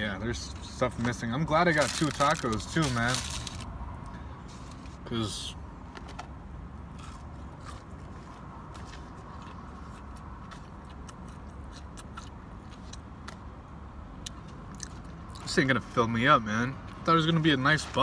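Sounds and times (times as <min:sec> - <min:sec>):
chewing crunchy food: 0:07.0 - 0:13.4, 0:14.2 - 0:15.5.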